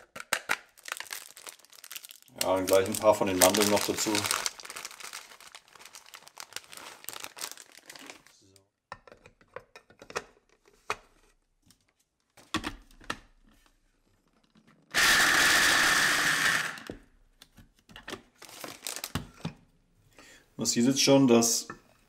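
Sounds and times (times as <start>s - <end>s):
electric food chopper whining: 14.9s - 17.0s.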